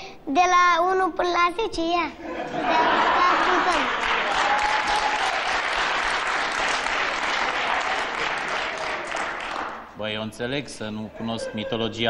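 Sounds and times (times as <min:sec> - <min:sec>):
studio audience applauding: 0:03.0 - 0:09.9.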